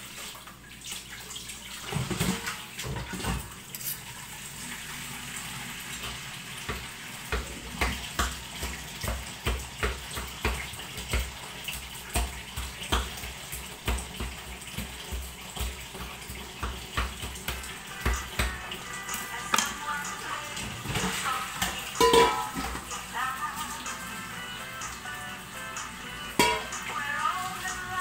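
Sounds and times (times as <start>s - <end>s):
pot boiling with bubbling pops: 6.0s - 19.9s, 20.6s - 23.1s, 26.4s - 26.9s.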